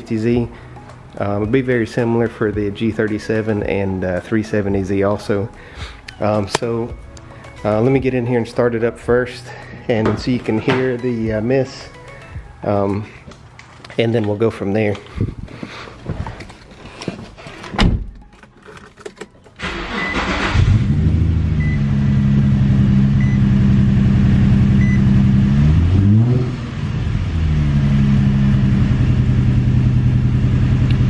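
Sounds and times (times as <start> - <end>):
car engine cranking and idling: 16.0 - 31.0.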